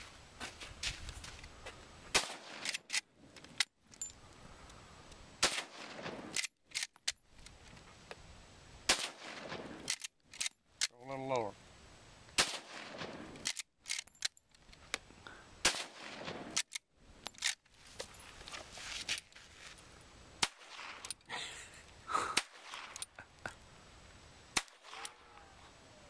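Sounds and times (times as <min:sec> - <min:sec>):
rifle gunshots: 0:02.1 - 0:02.8, 0:05.4 - 0:06.4, 0:08.9 - 0:09.9, 0:12.4 - 0:13.4, 0:15.6 - 0:16.6, 0:24.6 - 0:25.3
rifle action clicks and clacks: 0:02.5 - 0:04.1, 0:06.3 - 0:07.6, 0:09.8 - 0:11.0, 0:13.4 - 0:15.0, 0:16.5 - 0:17.6.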